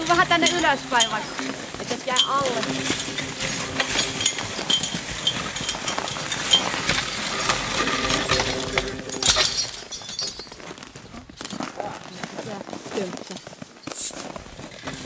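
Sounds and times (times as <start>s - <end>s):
log sled skidding over snow: 0.0s - 9.8s, 10.6s - 15.0s
harness and sled fittings clinking: 0.0s - 15.0s
horse hoof steps on snow: 10.6s - 15.0s.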